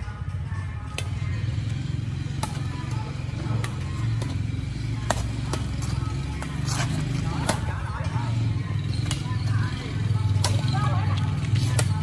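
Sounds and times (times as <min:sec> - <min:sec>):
rackets hitting shuttlecock: 0:00.9 - 0:01.3, 0:02.2 - 0:08.2, 0:08.9 - 0:12.0.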